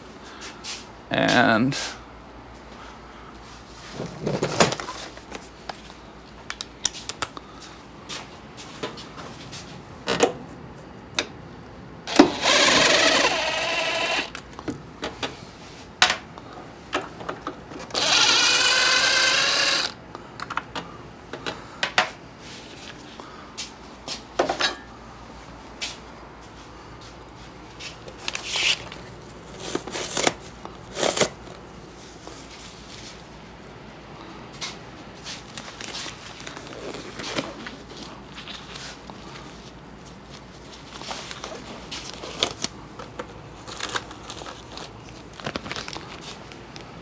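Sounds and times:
impact driver running: 12.1 - 14.4, 17.8 - 20.0.

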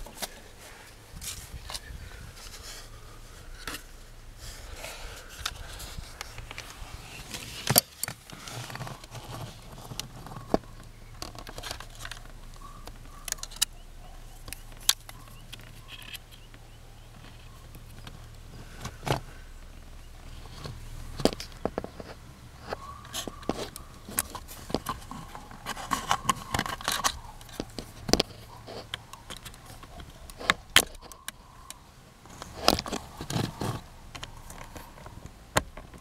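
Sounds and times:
steady low hum: 0.0 - 36.0
sharp clicks of plastic parts: 7.3 - 13.8, 14.4 - 16.6, 21.2 - 36.0.

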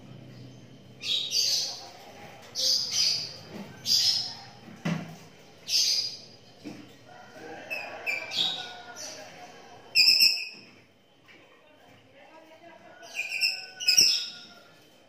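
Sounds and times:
birds chirping shrilly: 0.9 - 1.8.

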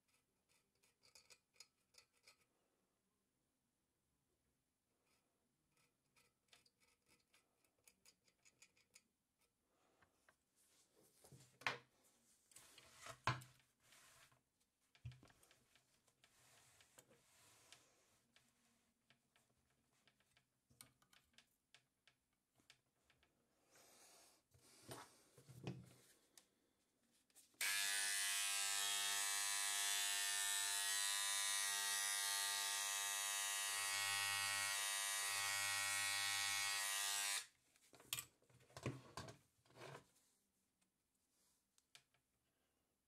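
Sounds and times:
tool scratching and clicking on stone: 0.0 - 2.5, 5.1 - 9.6
engraving tool buzzing: 27.6 - 37.5.

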